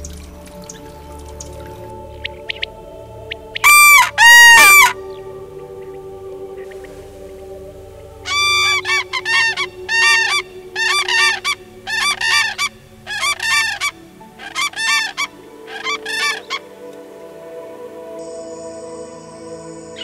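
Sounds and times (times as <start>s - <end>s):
cranes trumpeting calls: 3.5s - 5.2s, 8.2s - 16.9s.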